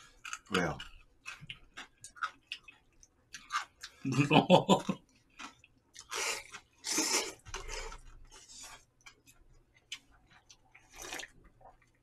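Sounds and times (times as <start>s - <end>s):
chewing and mouth noises: 0.0s - 4.2s, 4.8s - 12.0s
noodles being slurped: 6.0s - 8.9s, 10.7s - 11.4s.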